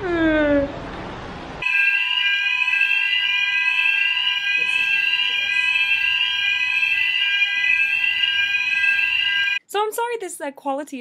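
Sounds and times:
fire alarm sweeping tone: 1.6 - 9.6
steady high alarm tones: 1.6 - 9.6.

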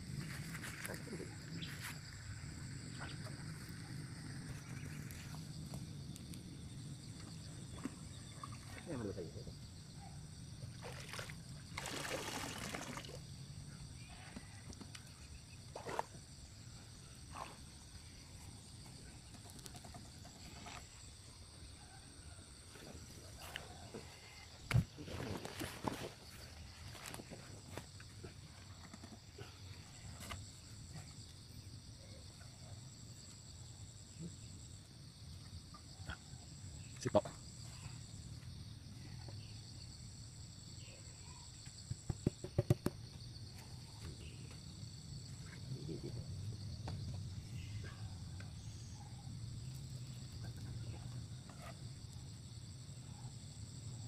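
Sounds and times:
crickets and insects chirring: 0.0 - 54.0
knocks of plastic pipe traps: 42.1 - 43.0.

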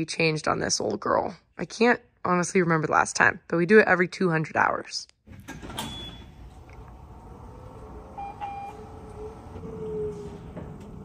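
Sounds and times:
short electronic beeps: 8.2 - 8.8.

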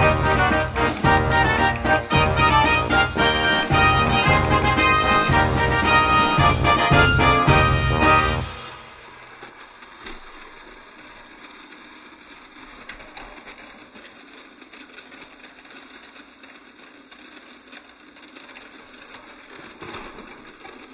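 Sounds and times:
toy train motor whirring: 9.8 - 20.9.

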